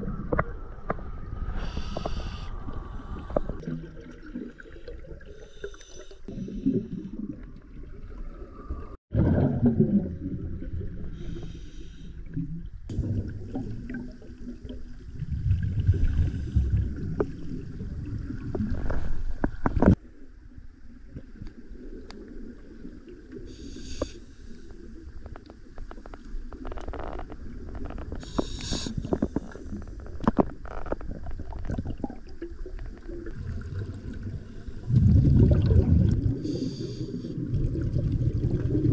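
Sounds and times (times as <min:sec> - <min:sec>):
hissing regulator breaths: 0:01.6 - 0:03.6, 0:11.2 - 0:12.2, 0:23.5 - 0:24.7, 0:28.2 - 0:29.8, 0:36.4 - 0:37.3
exhaust bubbles bursting underwater: 0:06.3 - 0:11.1, 0:31.7 - 0:36.7, 0:37.3 - 0:38.9.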